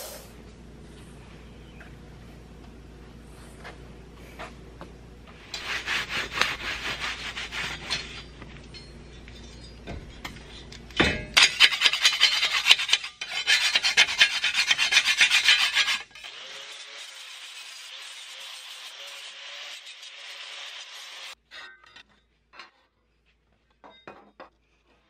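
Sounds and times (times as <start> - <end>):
hand scraper rasping on steel: 5.5 - 8.3, 11.4 - 21.3.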